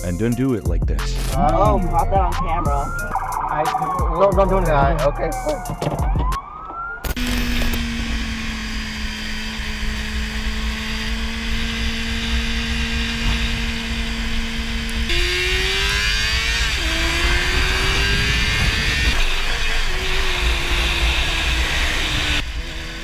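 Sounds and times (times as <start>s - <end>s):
motorcycle engine revving: 7.1s - 23.0s.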